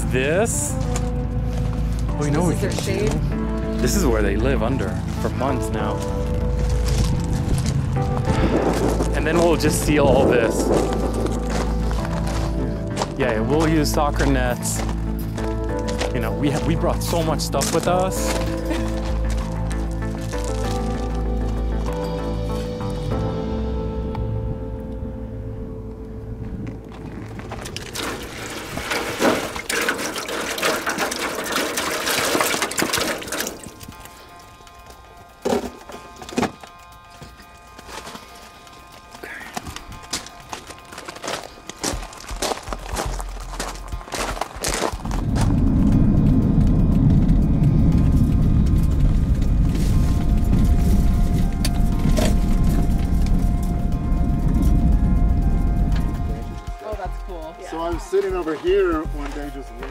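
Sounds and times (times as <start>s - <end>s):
background music: 0.0s - 59.9s
water pouring into foil pan: 27.8s - 34.0s
car road rumble inside cabin: 45.0s - 56.6s.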